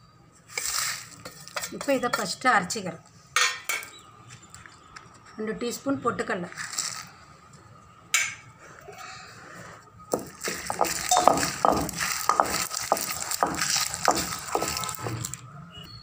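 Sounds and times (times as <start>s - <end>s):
spices clinking on stone: 10.1s - 15.4s.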